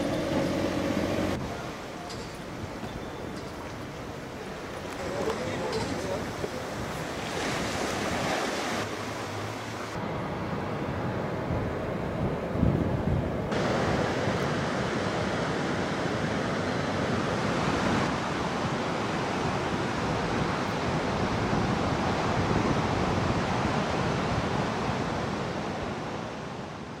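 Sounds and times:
surf breaking on rocks: 4.8 - 9.9.

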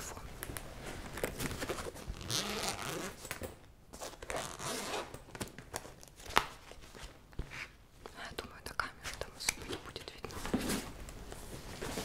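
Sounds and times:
zipper rasping open: 2.1 - 3.2, 4.3 - 5.2.

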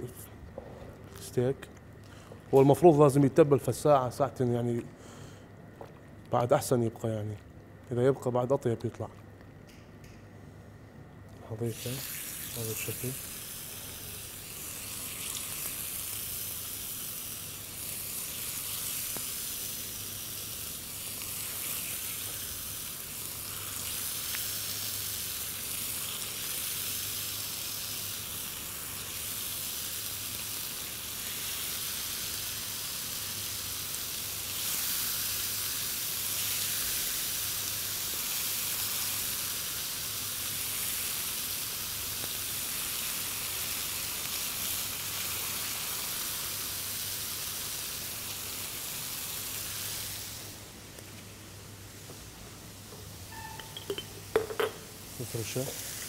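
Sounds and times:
meat sizzling on a grill: 11.6 - 52.0, 55.0 - 56.0.

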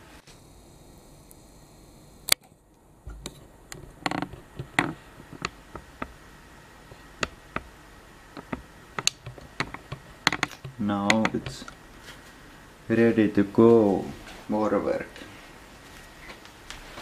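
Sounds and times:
handling clicks and knocks: 3.2 - 6.2, 8.3 - 11.8.

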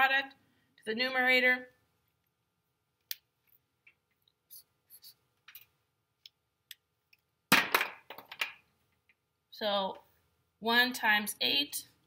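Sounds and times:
marker scratching on paper: 4.5 - 5.2.

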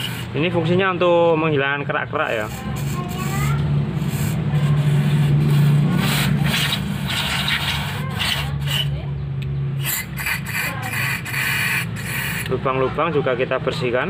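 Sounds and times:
aerosol spray hissing: 9.8 - 12.5.

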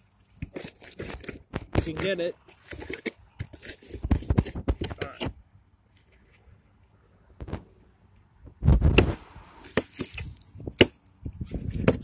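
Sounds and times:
knife crunching through fish: 0.4 - 5.0.

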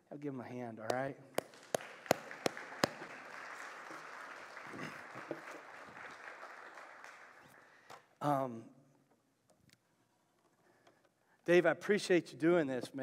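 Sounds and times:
congregation applauding: 1.3 - 7.8.

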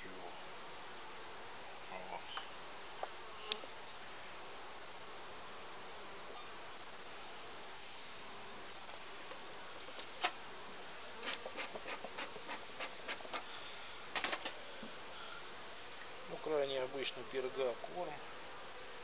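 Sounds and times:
bees buzzing: 7.8 - 19.0.

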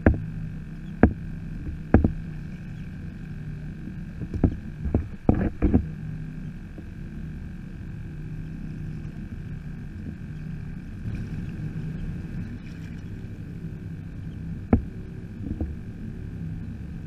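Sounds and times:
steady low hum: 0.0 - 17.0
knocks on plastic kayak hull: 1.0 - 2.2.

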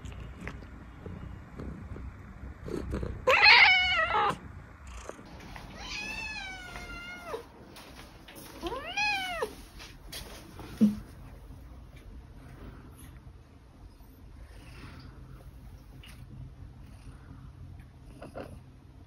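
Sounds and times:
cat meowing: 3.2 - 4.4, 5.7 - 7.5, 8.6 - 9.5.

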